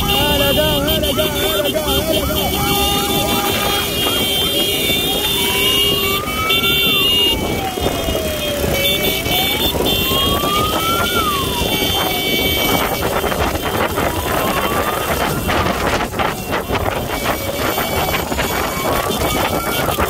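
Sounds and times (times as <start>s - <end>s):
motorcycle engine: 0.0s - 20.0s
traffic noise: 0.0s - 20.0s
wailing siren: 0.0s - 20.0s.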